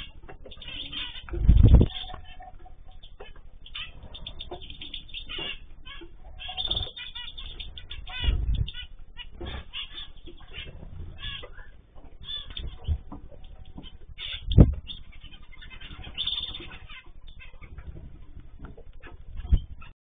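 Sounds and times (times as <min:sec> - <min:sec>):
wings flapping: 0:00.0 - 0:02.4
cage birds chirping: 0:00.0 - 0:19.9.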